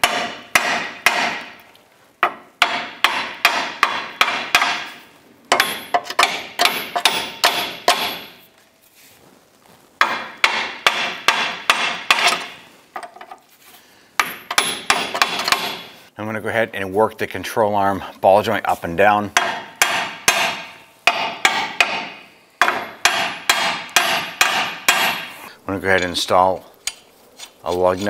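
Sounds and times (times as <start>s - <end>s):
hammer striking steel chisel: 0.0s - 1.6s, 2.2s - 8.4s, 10.0s - 12.6s, 14.2s - 16.0s, 19.4s - 25.4s.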